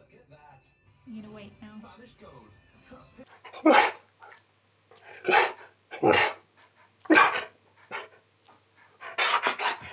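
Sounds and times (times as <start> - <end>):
husky bark-like calls: 3.4 - 4.0, 5.0 - 6.4, 7.1 - 8.1.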